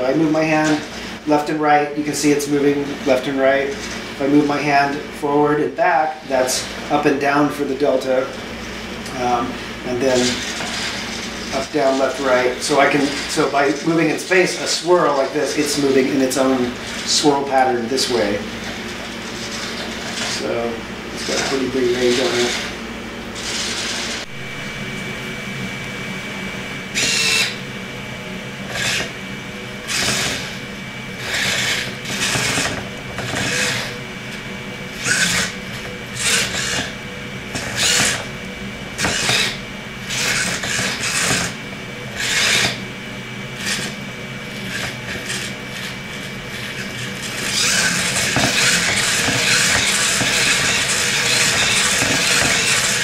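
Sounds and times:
robot motors whirring: 0.3 - 1.2, 9.1 - 22.8, 23.4 - 24.3, 26.9 - 27.6, 28.6 - 29.2, 29.8 - 38.3, 39.0 - 42.8, 43.6 - 53.0.

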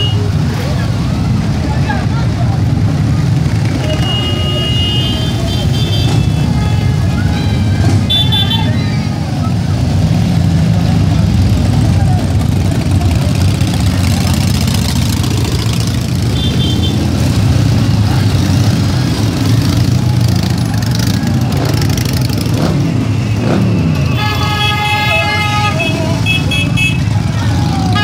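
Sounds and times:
motorcycles riding past: 0.0 - 28.0.

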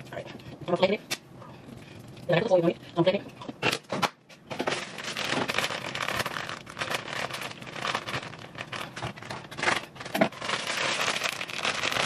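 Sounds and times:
food crackling in a pan: 5.0 - 12.0.

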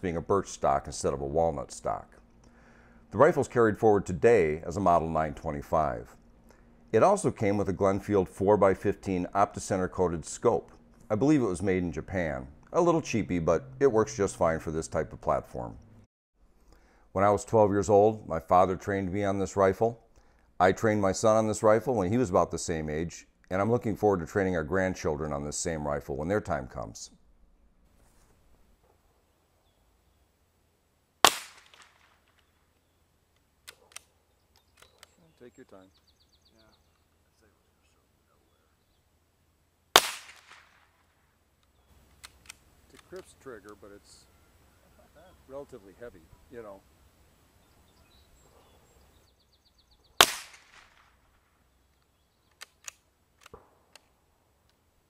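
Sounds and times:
rifle shot: 31.2 - 32.4, 39.9 - 41.1, 50.2 - 51.4, 53.4 - 53.9
short clicks: 33.3 - 35.8, 41.6 - 43.8, 51.9 - 54.8.

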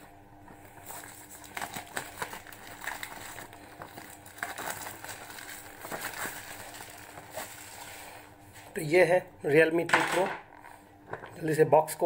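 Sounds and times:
plastic shrink-wrap crinkling: 0.8 - 8.3.

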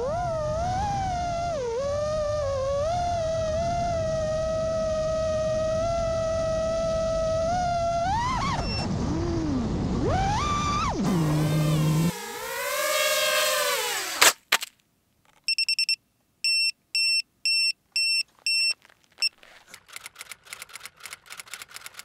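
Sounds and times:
drone motors whining: 0.0 - 14.2
quick electronic beeps: 15.5 - 19.4
typewriter-style clicks: 19.6 - 22.0.

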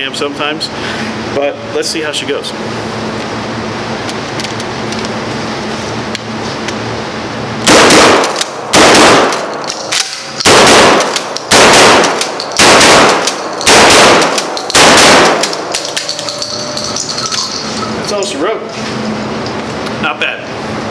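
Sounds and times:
ventilation hum: 0.0 - 20.9
shotgun blasts: 7.6 - 15.8.

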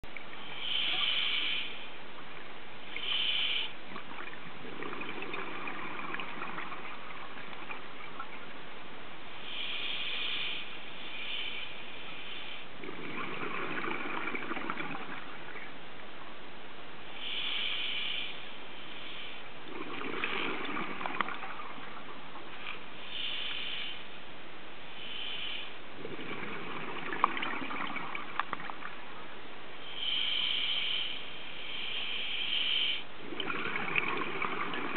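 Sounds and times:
regulator hiss on inhale: 0.4 - 2.0, 2.9 - 3.8, 9.3 - 15.2, 17.1 - 19.8, 22.6 - 24.2, 24.9 - 28.2, 29.8 - 34.9
bubbling exhaled air: 4.0 - 8.3, 12.8 - 15.6, 19.6 - 22.2, 26.0 - 29.0, 33.2 - 34.9.

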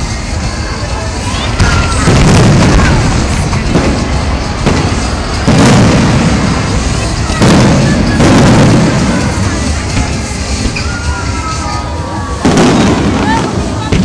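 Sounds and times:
fireworks bursting in booms: 1.5 - 11.1, 12.4 - 14.0.

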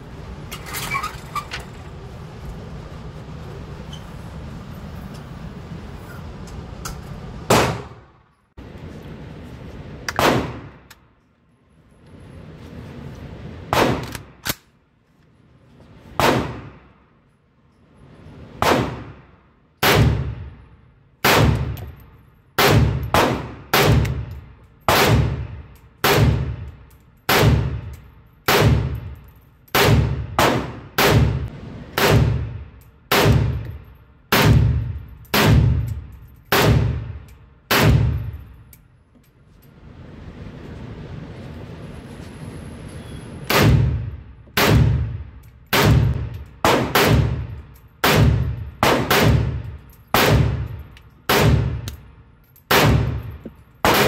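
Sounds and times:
pistol gunshots echoing indoors: 29.8 - 38.5, 43.5 - 52.0.

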